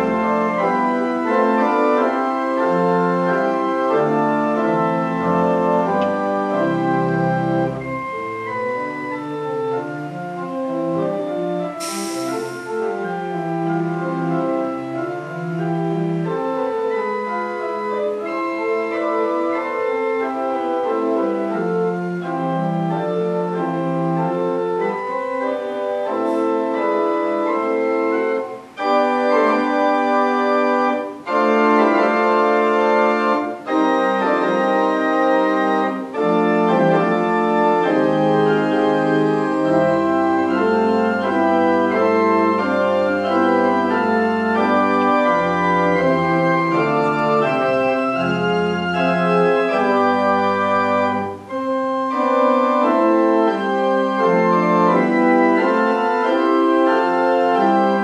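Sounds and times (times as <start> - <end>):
church organ playing chords: 0.0 - 58.0
burst of hiss: 11.8 - 13.1.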